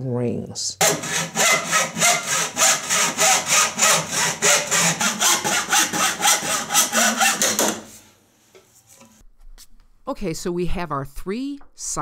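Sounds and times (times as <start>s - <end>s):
hacksaw cutting plastic pipe: 0.8s - 7.9s.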